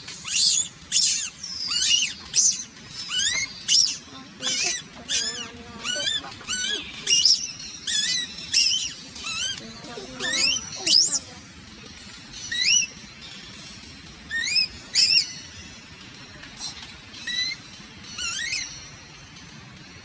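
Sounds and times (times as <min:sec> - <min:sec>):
infant monkey squealing: 0:00.2 - 0:11.3, 0:12.5 - 0:13.0, 0:14.3 - 0:15.3, 0:17.2 - 0:18.8.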